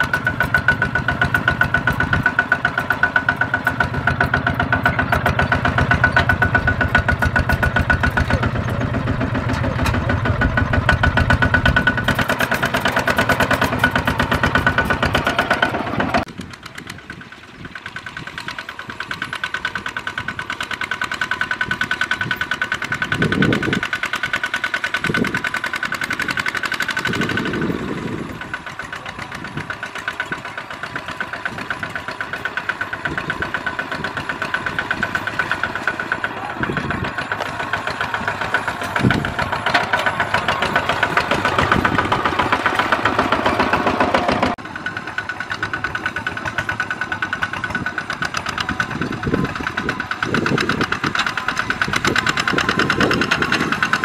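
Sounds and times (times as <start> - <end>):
diesel tractor engine running: 0.0 - 54.0.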